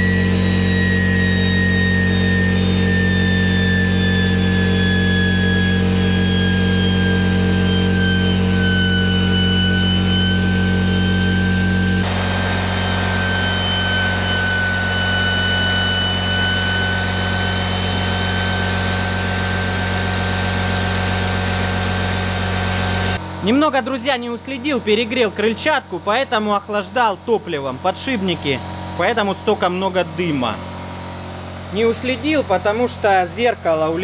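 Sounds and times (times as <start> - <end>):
low hum: 0.0 - 23.2
turbojet high whine: 0.0 - 23.6.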